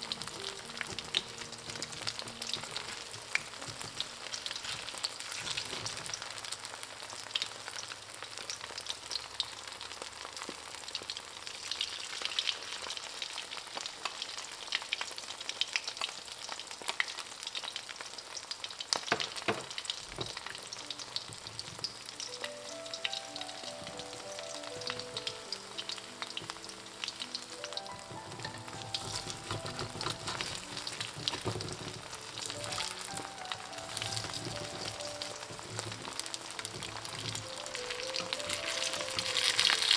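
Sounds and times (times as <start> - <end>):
soft background music: 0.0 - 7.3, 19.4 - 39.9
batter sizzling in hot oil: 0.0 - 39.9
spattering oil crackles and pops: 0.0 - 39.9.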